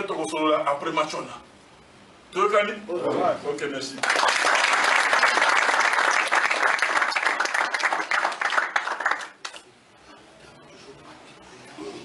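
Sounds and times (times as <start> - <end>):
crowd applauding: 4.0 - 9.6.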